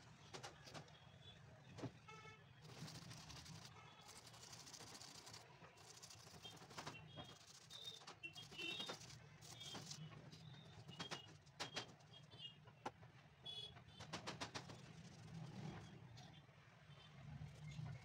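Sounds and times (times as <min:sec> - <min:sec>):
brush scrubbing shoe sole: 0:02.6 - 0:10.0.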